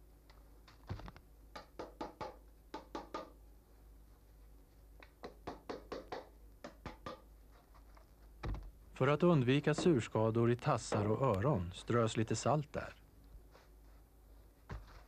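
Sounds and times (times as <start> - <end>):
hammer tapping nails into wood: 1.6 - 3.4, 5.2 - 7.3.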